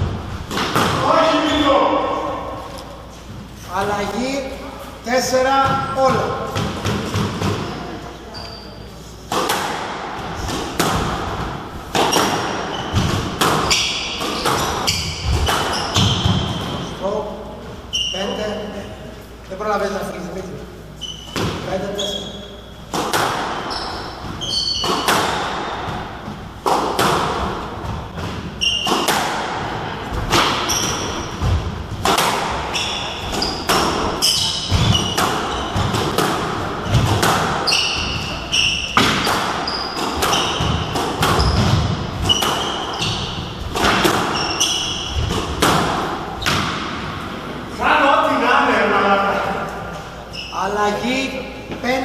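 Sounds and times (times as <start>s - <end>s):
squash ball hitting racquets and walls: 0.0s - 4.2s, 5.4s - 8.0s, 9.2s - 18.2s, 21.0s - 47.8s
shoes squeaking on wooden floor: 12.0s - 16.9s, 21.0s - 26.6s, 27.7s - 29.2s, 30.1s - 45.7s.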